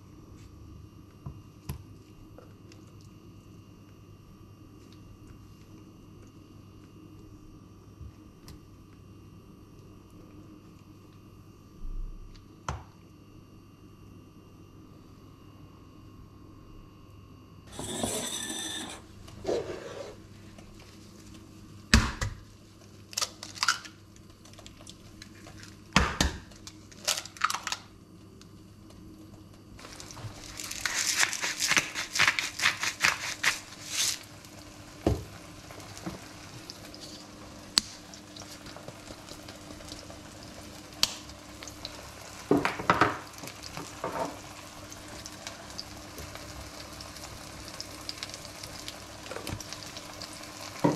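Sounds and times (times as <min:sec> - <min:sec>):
oil sizzling in pan: 0:17.7 - 0:19.9, 0:29.8 - 0:50.9
kitchen handling: 0:17.7 - 0:20.0
spice shaker shaken: 0:30.5 - 0:34.2.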